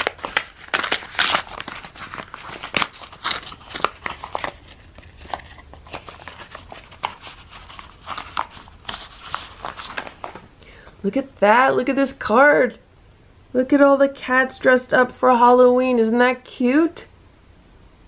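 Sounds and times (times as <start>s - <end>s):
paper envelope being torn open: 0.0s - 10.5s.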